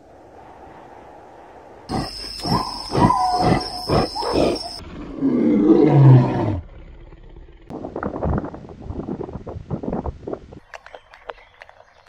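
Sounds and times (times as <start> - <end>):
lion roaring: 1.9 - 7.7.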